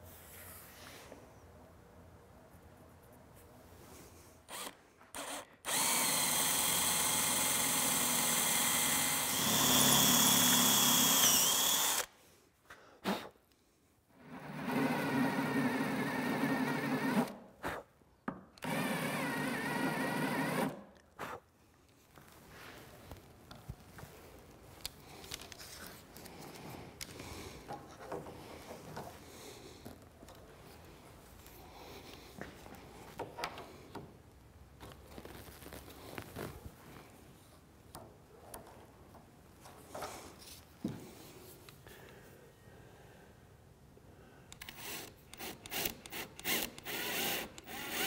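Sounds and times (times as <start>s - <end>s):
electric drill whining: 4.5s - 12.1s, 14.3s - 17.4s, 18.6s - 20.8s, 44.6s - 48.0s.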